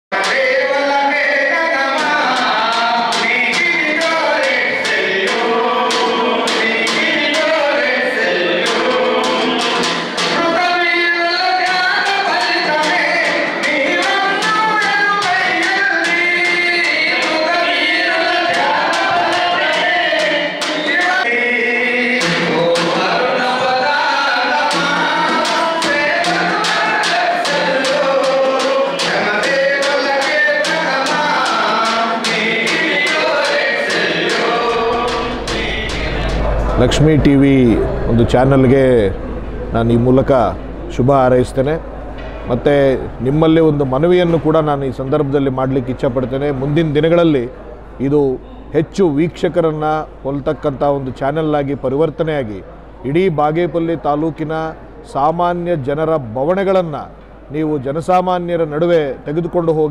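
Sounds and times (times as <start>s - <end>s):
men singing together: 0.1s - 37.2s
hand drum beat: 1.8s - 21.3s, 24.4s - 38.4s.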